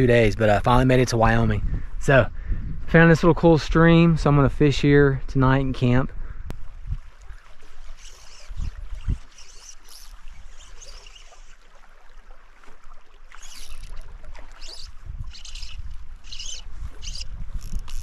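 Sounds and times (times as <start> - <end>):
water swishing and splashing: 6.5 - 18.0.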